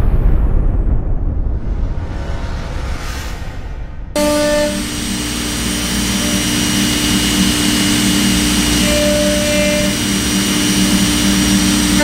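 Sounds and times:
router spindle whining: 4.2s - 12.0s.

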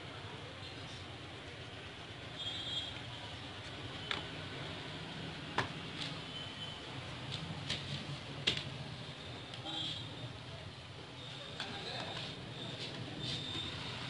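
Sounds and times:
steady background noise: 0.0s - 14.0s.

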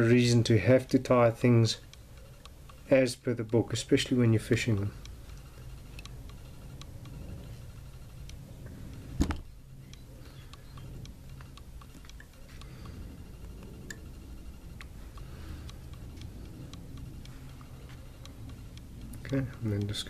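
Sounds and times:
light clicks and ticks from tools: 0.0s - 7.3s, 9.8s - 14.1s, 14.7s - 20.0s
low steady hum: 0.0s - 20.0s.

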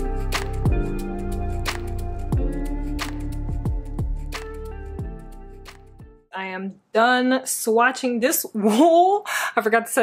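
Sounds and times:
background music with held notes: 0.0s - 6.3s.

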